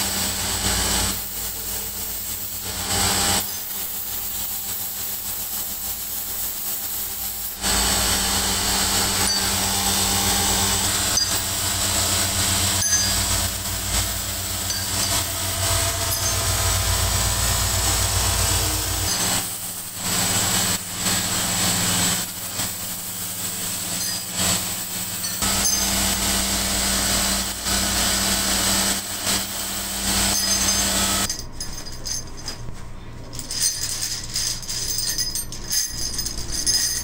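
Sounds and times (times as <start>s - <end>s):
buffing machine humming: 7.4s - 31.3s
metal levers clinking: 30.3s - 37.0s.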